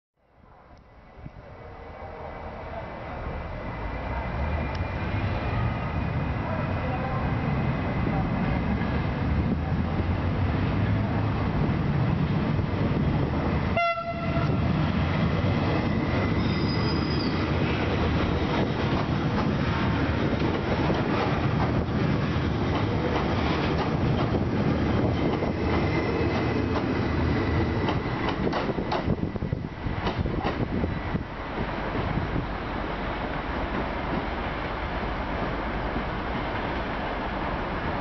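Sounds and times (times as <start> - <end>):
train wheels on rail: 3.8 - 38.0.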